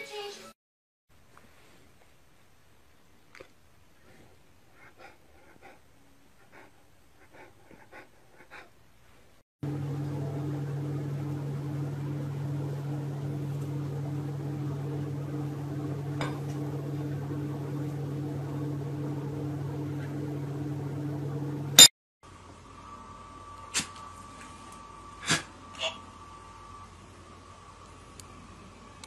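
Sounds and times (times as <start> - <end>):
low mechanical hum: 9.6 - 29.0.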